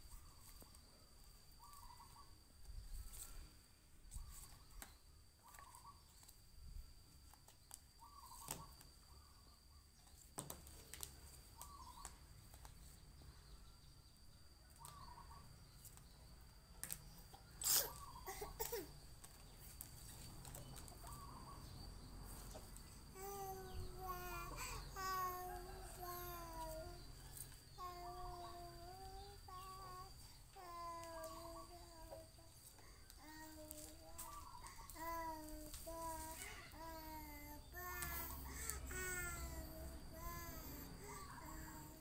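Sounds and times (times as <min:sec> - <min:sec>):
high insect drone: 0:00.0 - 0:42.0
bird calling: 0:01.6 - 0:02.4, 0:08.0 - 0:08.8, 0:17.5 - 0:18.8, 0:27.8 - 0:40.4.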